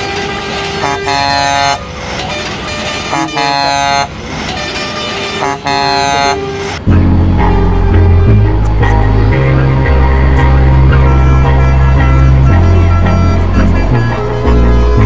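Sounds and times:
truck air horn blasts: 0:00.0 - 0:06.8
lower horn tones: 0:00.0 - 0:15.0
street noise: 0:00.0 - 0:15.0.

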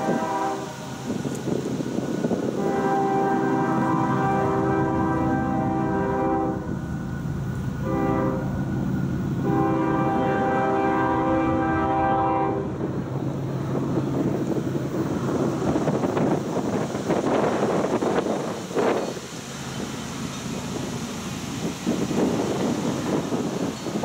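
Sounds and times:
locomotive air horn blasts: 0:00.0 - 0:01.0, 0:02.6 - 0:06.7, 0:07.8 - 0:08.6, 0:09.4 - 0:12.8
approaching train rumble: 0:00.0 - 0:24.0.

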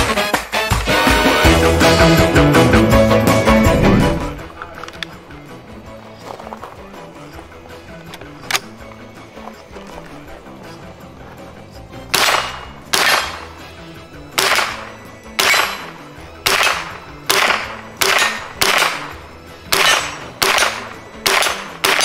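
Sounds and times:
rifle shots: 0:12.1 - 0:13.6, 0:14.4 - 0:22.0.

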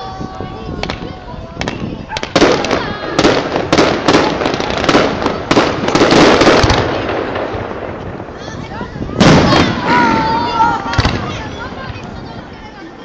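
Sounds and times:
fireworks bangs: 0:00.0 - 0:12.6
fireworks crackling: 0:00.0 - 0:13.0.

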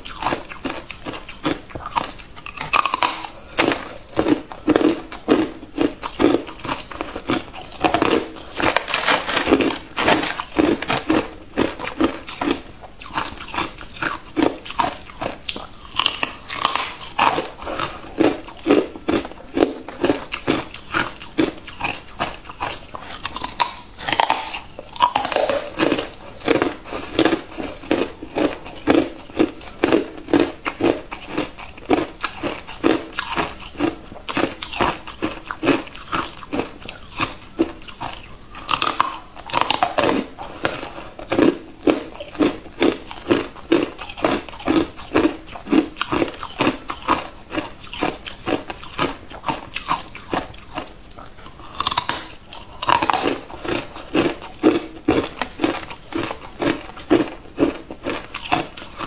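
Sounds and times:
ice crunching between teeth: 0:00.0 - 0:59.0.

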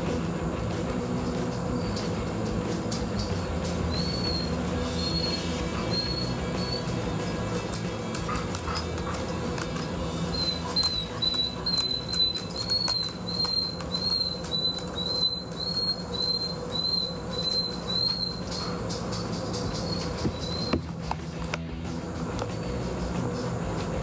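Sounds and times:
steady low hum: 0:00.0 - 0:24.0
puppy whining: 0:03.1 - 0:20.9.

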